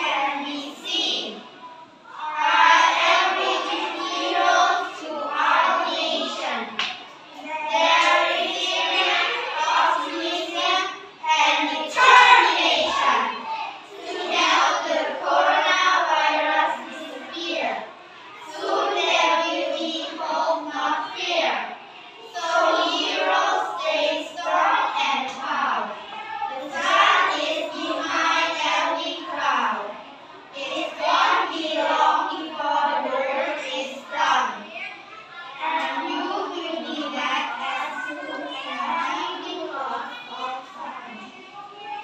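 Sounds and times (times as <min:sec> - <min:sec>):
children reciting in unison: 0:00.0 - 0:42.0.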